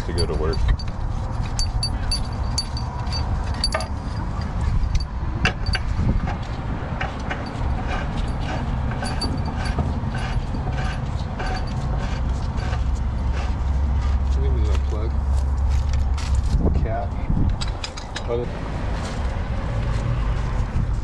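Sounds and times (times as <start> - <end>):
metallic clicks and scrapes: 0.0 - 14.3, 17.4 - 18.4
steady low rumble: 0.0 - 17.7.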